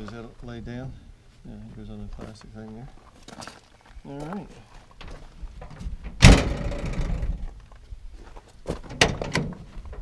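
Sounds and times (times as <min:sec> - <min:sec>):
tailgate slamming with clang: 0:06.0 - 0:07.2.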